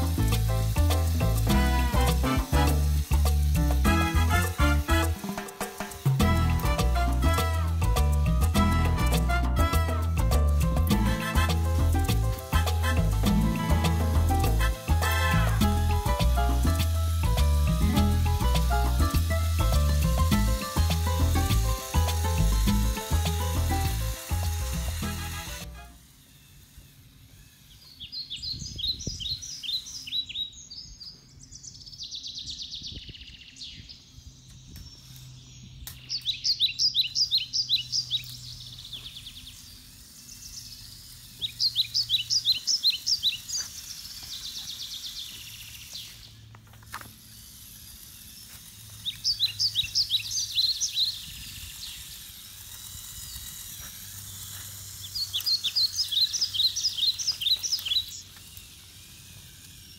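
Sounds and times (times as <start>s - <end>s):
songbird chirping: 26.5s - 46.6s, 54.3s - 58.4s.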